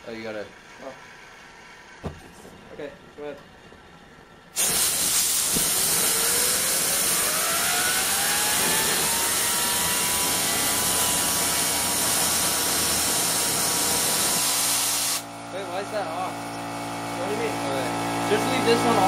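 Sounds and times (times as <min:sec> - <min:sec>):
jet engine rushing hiss: 0:04.6 - 0:15.3
whine of spinning blades: 0:05.7 - 0:15.4.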